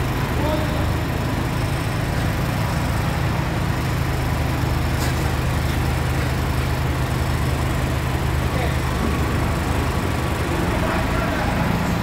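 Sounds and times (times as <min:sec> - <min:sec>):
forklift engine idling: 0:00.0 - 0:12.0.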